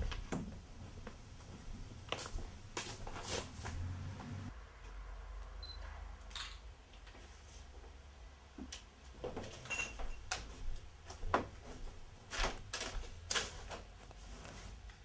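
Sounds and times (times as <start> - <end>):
steady low hum: 0.0 - 9.4.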